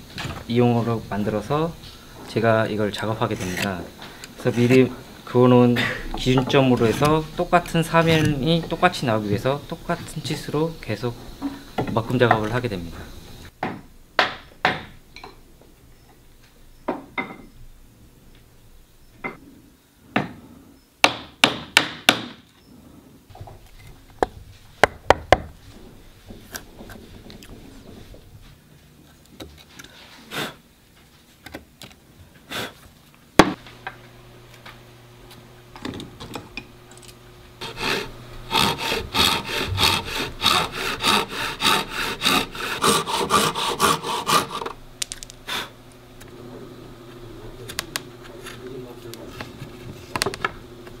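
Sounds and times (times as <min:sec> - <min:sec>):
hand saw cutting wood: 0:37.6 - 0:44.8.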